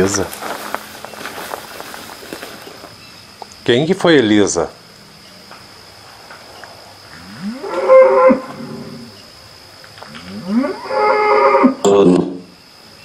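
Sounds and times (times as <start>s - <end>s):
cow mooing: 7.2s - 9.2s, 10.1s - 12.3s.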